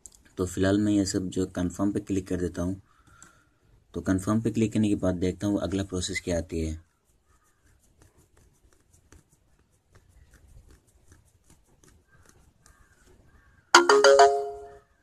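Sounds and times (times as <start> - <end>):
phone notification chime: 13.8 - 14.8.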